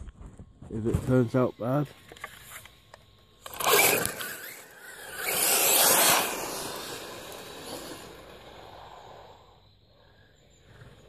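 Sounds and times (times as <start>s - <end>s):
electric motor whining: 3.4s - 8.8s.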